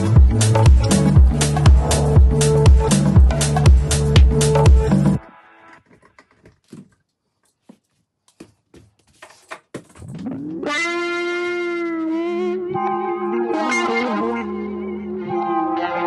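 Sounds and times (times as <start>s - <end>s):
background music held note: 12.1s - 16.0s.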